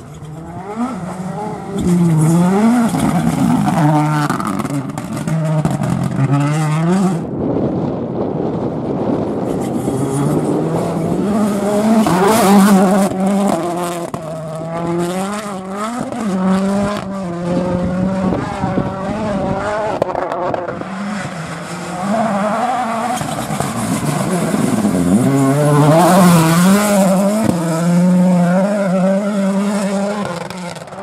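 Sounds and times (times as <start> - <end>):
rally car engine accelerating: 0.0 - 31.0.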